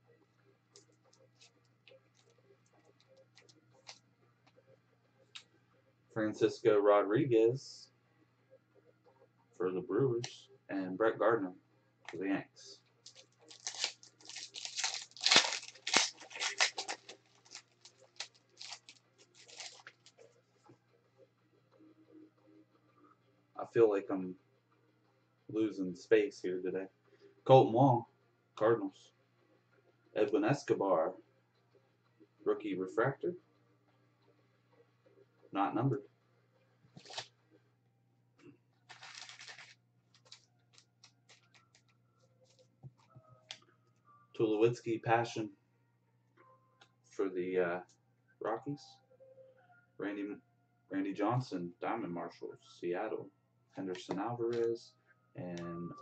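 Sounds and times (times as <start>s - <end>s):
cards rustling: 13.1s - 20.2s, 37.0s - 37.3s, 38.9s - 41.9s
foil wrapper crinkling: 13.1s - 20.2s, 37.0s - 37.2s, 38.9s - 41.9s.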